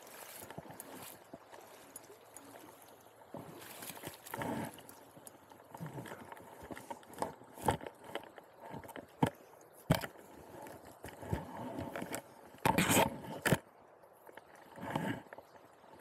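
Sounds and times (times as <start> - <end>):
water splashing: 0.0 - 7.8
river current rushing: 0.0 - 8.7.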